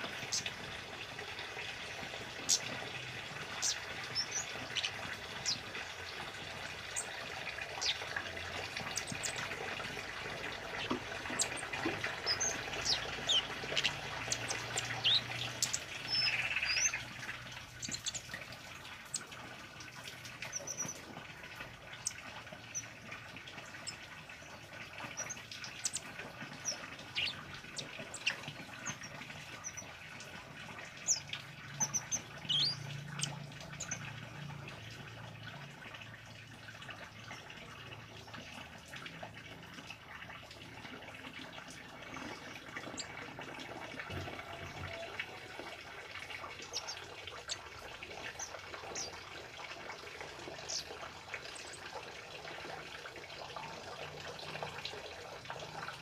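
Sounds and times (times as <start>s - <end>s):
bird chirping: 10.8s - 17.1s.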